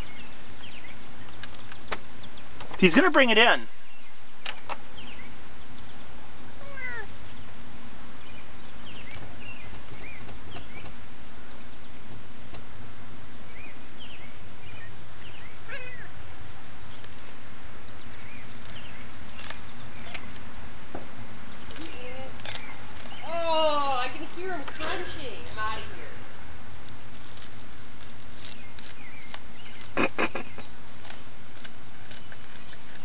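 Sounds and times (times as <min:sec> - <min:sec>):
cat meowing faintly: 0:06.6 - 0:07.1.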